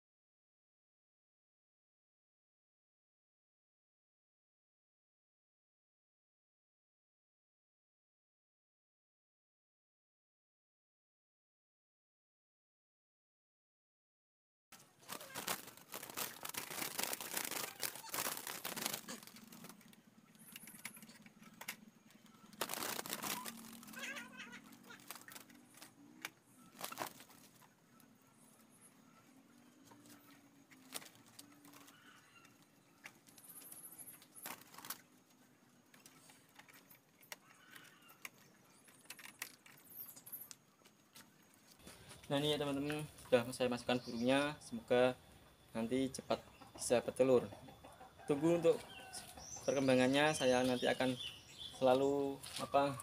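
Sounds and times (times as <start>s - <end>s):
wooden bird cage rattling: 15.1s - 25.9s.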